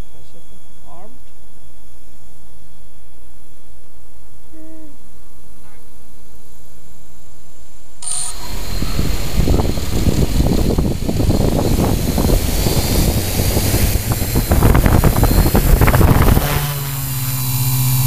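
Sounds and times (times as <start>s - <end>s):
drone propeller hum: 7.9s - 18.0s
wind buffeting microphone: 8.3s - 18.0s.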